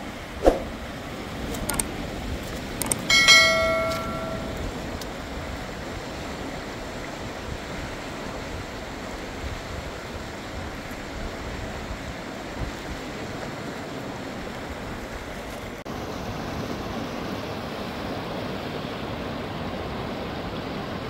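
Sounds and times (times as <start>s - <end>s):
bell-like ding: 3.0s - 4.8s.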